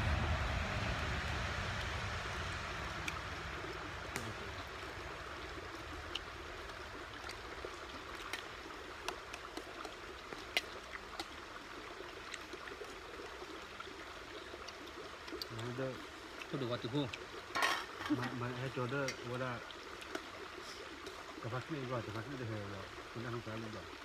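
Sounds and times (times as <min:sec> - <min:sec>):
steady rushing background: 0:00.0 - 0:04.1.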